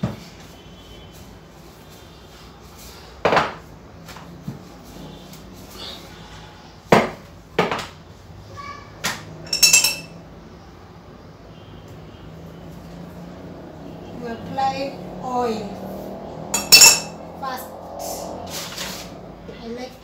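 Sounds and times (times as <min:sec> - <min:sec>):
metal spoon ringing against glass: 0:09.5 - 0:10.2, 0:16.6 - 0:17.2.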